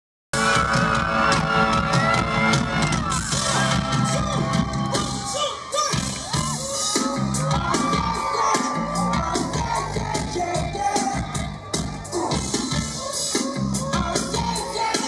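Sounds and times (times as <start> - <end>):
fans screaming and whooping: 0.4 - 15.0
live band music: 0.4 - 15.0.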